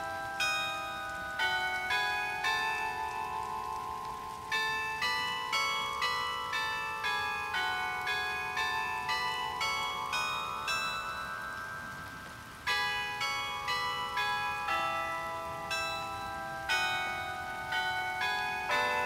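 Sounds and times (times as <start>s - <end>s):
clock bells playing a tune: 0.0s - 19.0s
light rain hissing: 0.0s - 19.0s.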